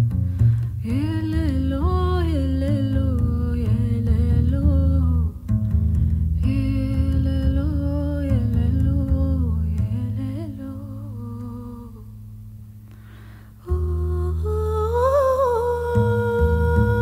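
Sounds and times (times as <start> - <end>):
double bass notes: 0.0 - 17.0
breath: 0.2 - 0.8, 12.8 - 13.6
woman humming: 13.6 - 17.0.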